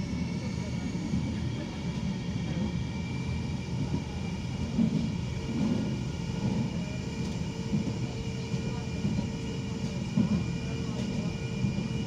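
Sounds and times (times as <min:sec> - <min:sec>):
tram wheels rumbling on rails: 0:00.0 - 0:12.0.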